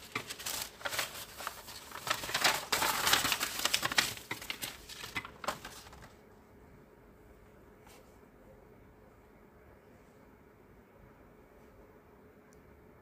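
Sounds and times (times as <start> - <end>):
paper rustling and crinkling: 0.0 - 6.2.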